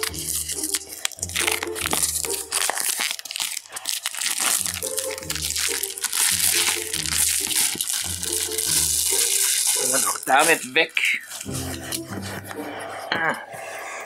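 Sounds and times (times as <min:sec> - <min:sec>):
plastic bag crinkling: 0:00.0 - 0:12.5.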